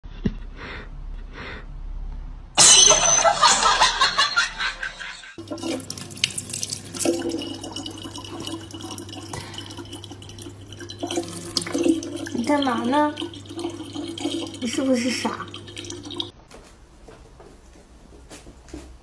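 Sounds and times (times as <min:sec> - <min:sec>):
water running into plastic bottle: 0:05.4 - 0:16.3.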